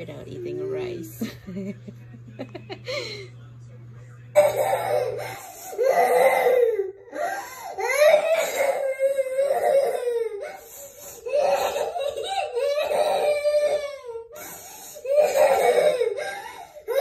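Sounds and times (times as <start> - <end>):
girl crying and wailing: 4.4 - 17.0.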